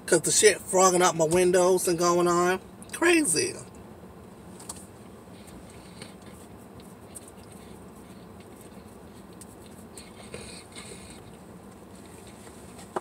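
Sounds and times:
car cabin low hum: 0.1s - 13.0s.

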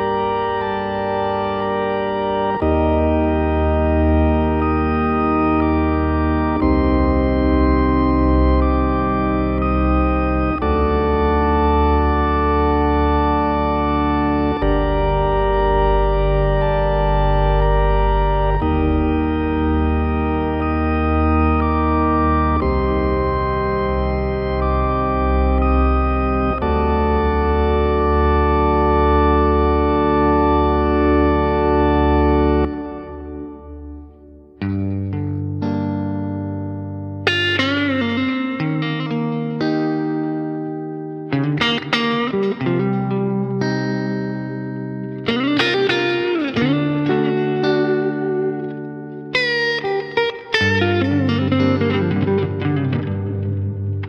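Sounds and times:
deep bass: 0.0s - 33.5s
sustained organ chords: 0.0s - 54.0s.

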